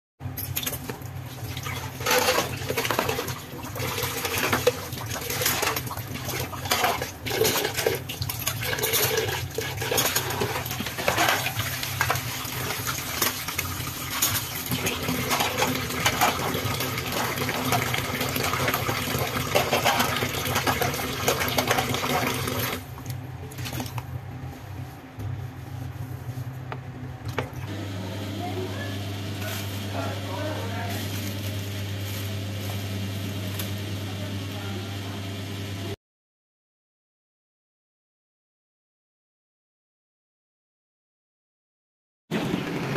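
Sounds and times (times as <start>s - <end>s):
tap water running into a sink: 0.6s - 22.8s.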